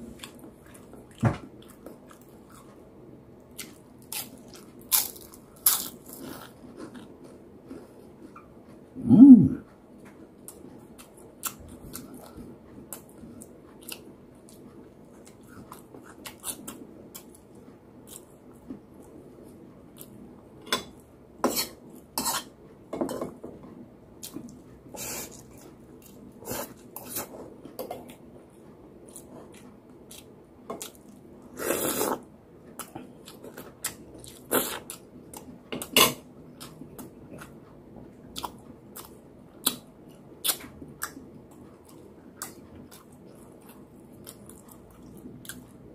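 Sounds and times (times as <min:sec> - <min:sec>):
person chewing: 0:29.1 - 0:32.2, 0:32.8 - 0:35.5, 0:40.4 - 0:45.8.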